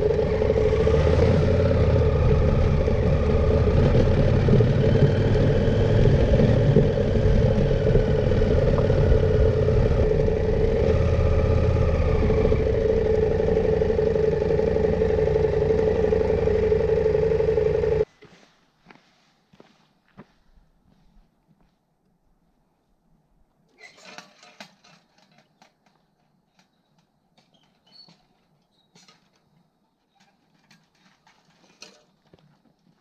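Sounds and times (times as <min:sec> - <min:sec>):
motorcycle engine running: 0:00.0 - 0:18.1
road noise: 0:00.0 - 0:18.1.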